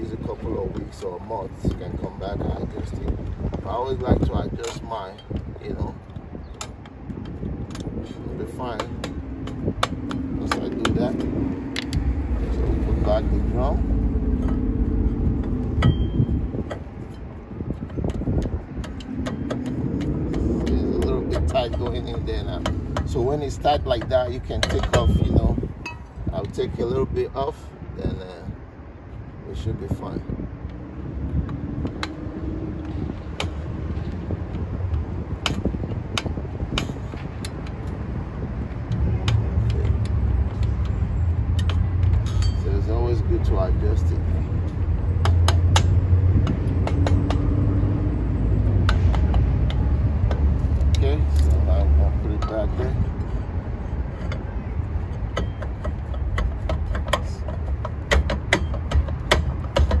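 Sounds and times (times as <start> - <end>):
steady low rumble: 0.0 - 60.0
low rumble: 5.2 - 23.4
brake drum clicking: 54.2 - 60.0.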